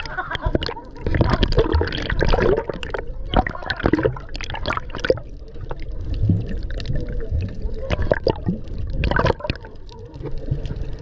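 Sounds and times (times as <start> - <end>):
muffled underwater rumbling wash: 0.0 - 11.0
water splashing and sloshing: 0.0 - 11.0.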